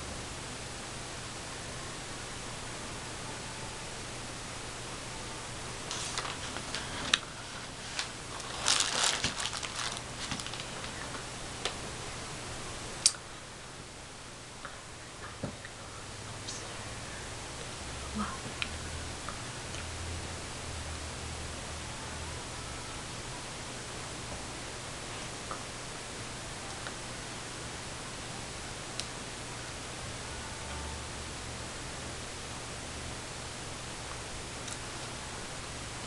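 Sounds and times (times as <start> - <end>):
faint steady hum: 0.0 - 36.0
recording hiss: 0.0 - 36.0
clothes and hands rustling: 5.9 - 11.3.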